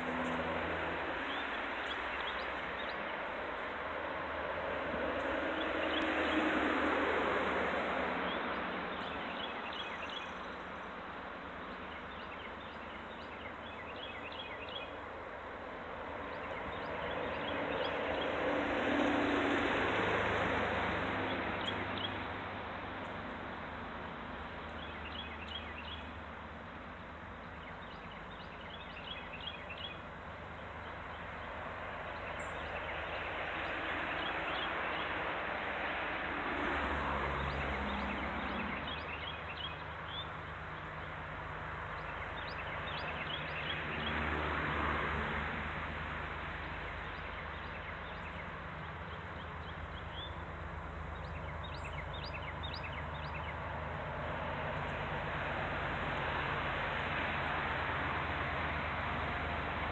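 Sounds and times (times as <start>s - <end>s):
diesel locomotives rumbling: 0.0s - 59.9s
small birds chirping: 1.2s - 3.7s, 8.2s - 15.4s, 24.6s - 26.3s, 26.9s - 35.1s, 37.4s - 44.1s, 46.6s - 53.7s.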